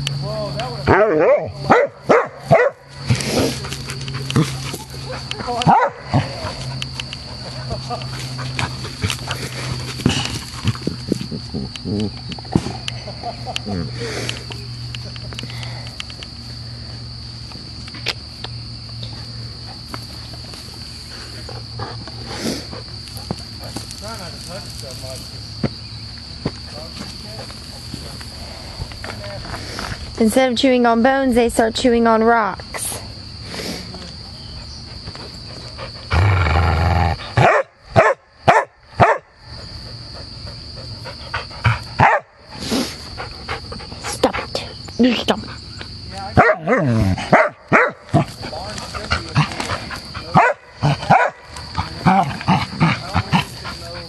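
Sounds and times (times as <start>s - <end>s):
insects droning: 0.0s - 54.0s
dog barking: 0.9s - 2.9s, 5.6s - 6.2s, 37.4s - 39.3s, 42.0s - 42.3s, 46.4s - 48.3s, 50.3s - 51.5s
dog growling: 36.0s - 37.4s, 46.6s - 47.4s, 48.1s - 54.0s.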